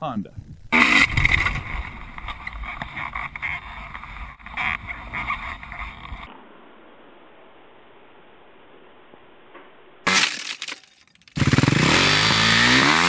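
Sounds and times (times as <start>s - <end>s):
wind rushing over microphone: 0.2s - 2.7s
motocross bike engine: 0.8s - 6.3s, 11.3s - 13.0s.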